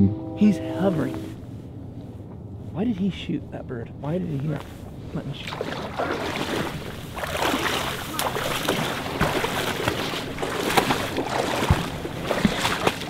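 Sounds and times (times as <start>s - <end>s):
footsteps splashing in water: 5.4s - 13.0s.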